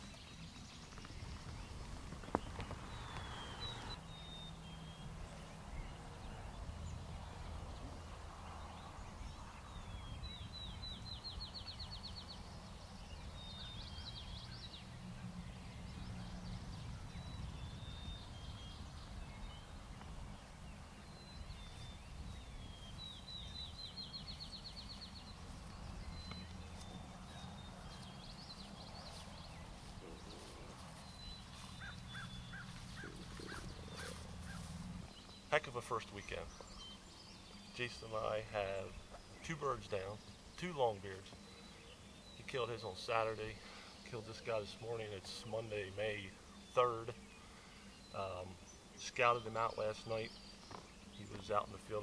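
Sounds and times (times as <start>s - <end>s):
bird song with rising trill: 0.0s - 52.0s
songbirds singing: 0.0s - 52.0s
low steady rumble: 12.8s - 35.2s.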